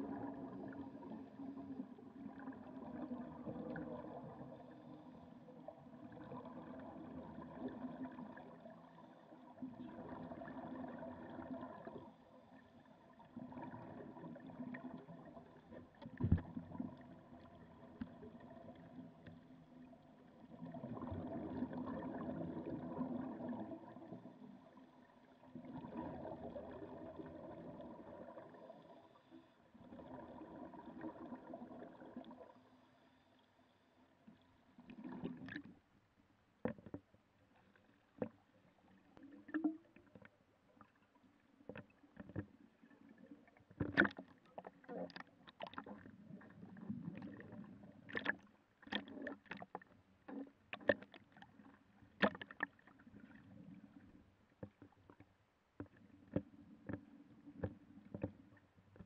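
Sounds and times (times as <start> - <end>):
underwater bubbling from divers: 0.0 - 32.8, 34.3 - 35.8, 38.2 - 55.2.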